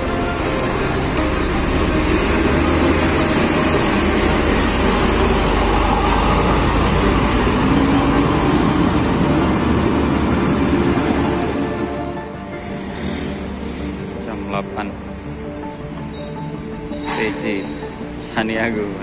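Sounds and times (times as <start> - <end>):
bus diesel engine droning: 0.0 - 19.0.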